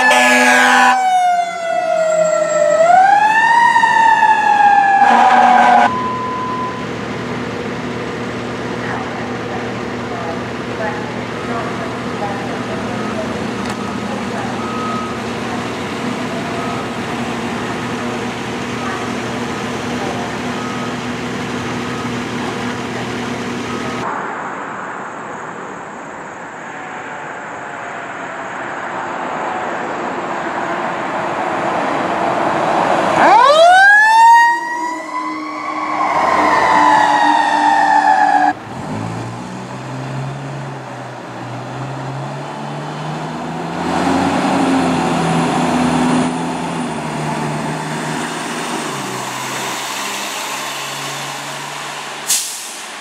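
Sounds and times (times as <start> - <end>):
emergency vehicle siren: 0.0 - 8.4, 9.0 - 24.2, 32.6 - 38.6, 39.8 - 53.0
traffic noise: 0.0 - 53.0
heavy truck engine running: 5.9 - 24.1.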